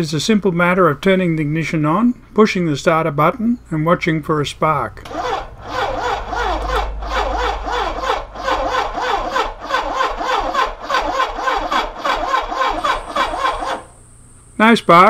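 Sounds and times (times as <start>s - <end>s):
electric starter cranking engine: 5.0s - 14.2s.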